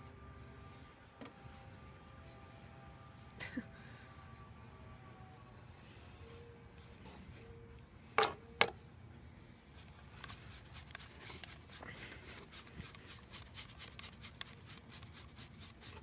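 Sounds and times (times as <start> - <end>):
brush strokes through dog fur: 0.0 - 4.6, 5.9 - 7.8, 9.7 - 16.0.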